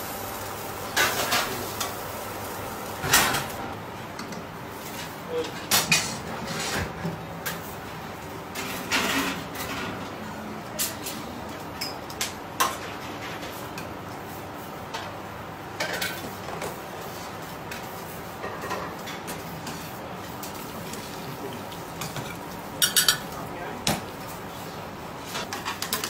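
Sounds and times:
utensil clinking on metal platter: 22.0 - 23.4.

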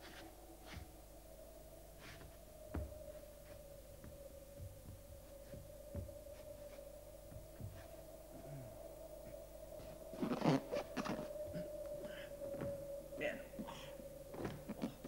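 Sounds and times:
faint steady hum: 0.0 - 15.0
soft low thumps: 2.2 - 11.7.

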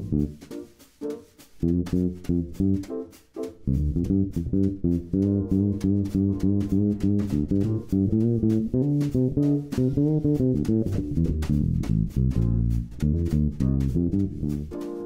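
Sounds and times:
instrumental guitar and bass music: 0.0 - 15.0.

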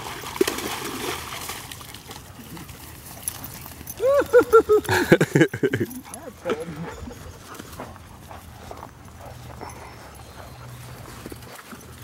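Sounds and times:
faint water splashing: 0.0 - 8.4.

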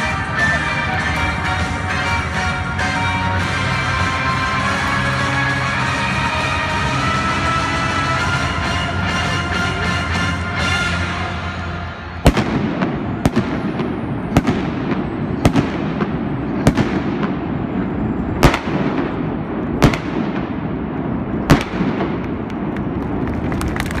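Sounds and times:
faint fireworks pops: 12.2 - 17.6, 18.4 - 24.0
fireworks bangs: 12.2 - 24.0.

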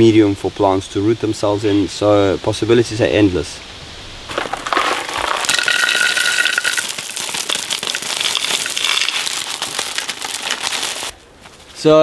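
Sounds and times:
plastic sheeting crinkling: 4.3 - 11.8.

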